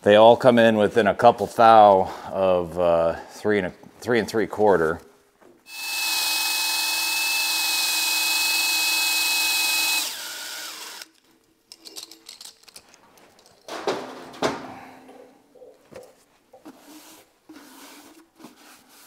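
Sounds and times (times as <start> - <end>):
cordless drill whining: 5.7 - 11.1.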